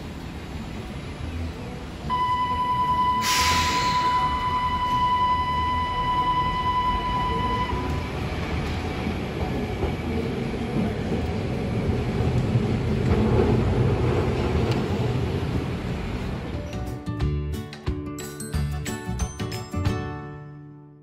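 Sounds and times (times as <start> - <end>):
tram motors and wheels rumbling: 0.0 - 17.3
high electronic tone: 2.1 - 8.2.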